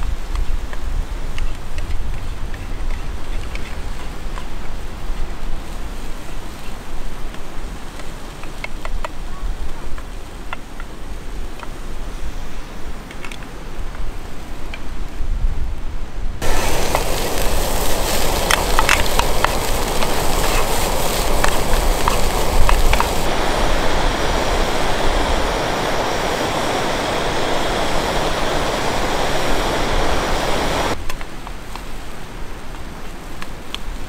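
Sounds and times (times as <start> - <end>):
onions sizzling in a pan: 16.4 - 31.0.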